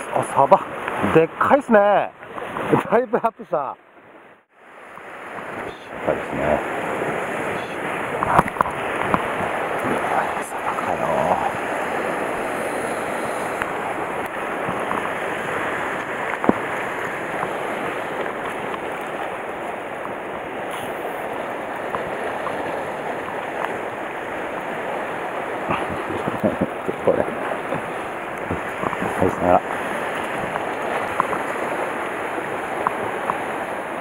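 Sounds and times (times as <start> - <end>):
sea surf against rocks: 0.0 - 34.0.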